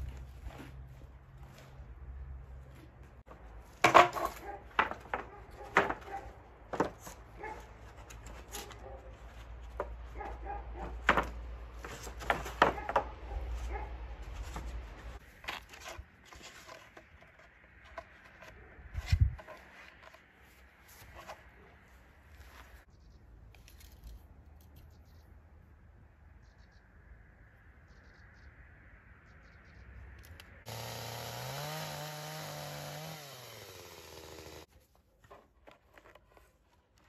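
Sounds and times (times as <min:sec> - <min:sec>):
wooden boards knocking together: 0:03.8 - 0:07.1, 0:10.8 - 0:13.1.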